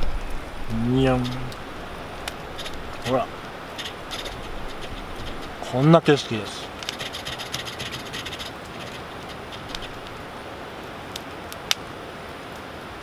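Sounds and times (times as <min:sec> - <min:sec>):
sharp fire pops: 0:00.0 - 0:05.8, 0:06.8 - 0:10.3
campfire crackling: 0:00.0 - 0:13.0
steady hiss: 0:00.0 - 0:13.0.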